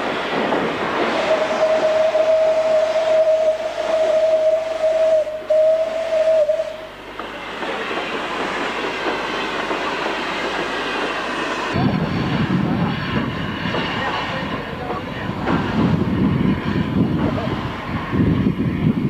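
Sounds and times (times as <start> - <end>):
train running: 0.0 - 19.0
steam locomotive whistle: 1.1 - 7.0.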